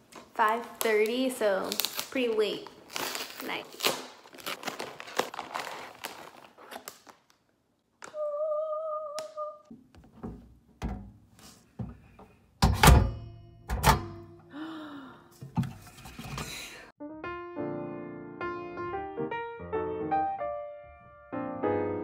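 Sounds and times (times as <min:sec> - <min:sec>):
plastic bag crinkling: 0:00.1 - 0:07.6.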